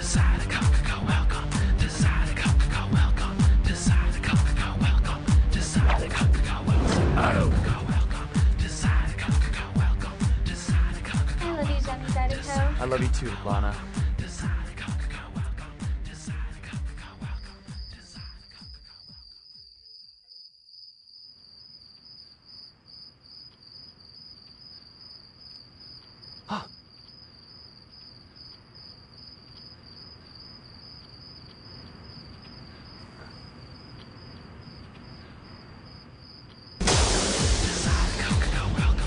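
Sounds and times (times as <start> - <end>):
cricket trilling: 17.0 - 36.8
loud music with a beat: 36.8 - 39.0.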